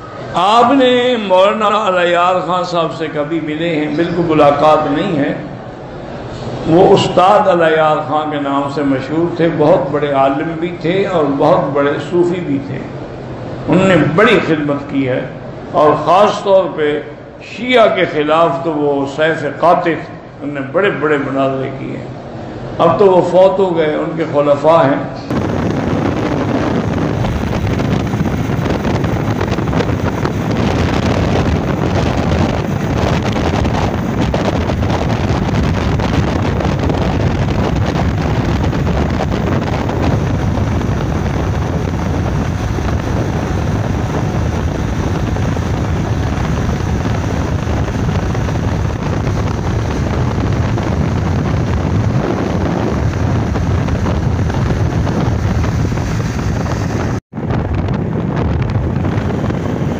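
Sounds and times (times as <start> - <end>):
wind buffeting microphone: 25.2 - 59.9.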